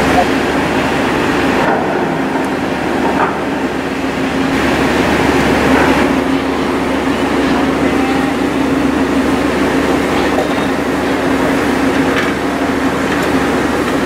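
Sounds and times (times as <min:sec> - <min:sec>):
ship machinery hum: 0:00.0 - 0:14.0
ventilation rushing noise: 0:00.0 - 0:14.0.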